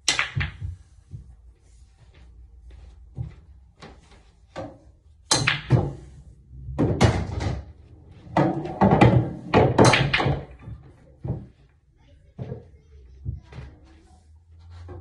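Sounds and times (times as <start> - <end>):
pool balls clacking: 0.0 - 0.8, 4.5 - 11.6
balls knocking against table: 0.0 - 1.3, 3.2 - 11.6.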